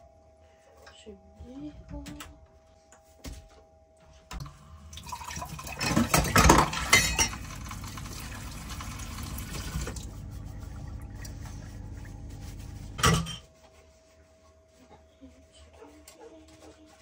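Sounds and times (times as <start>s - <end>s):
tap water running into sink: 4.9s - 10.2s
dishes clinking: 5.1s - 7.8s, 13.0s - 13.5s.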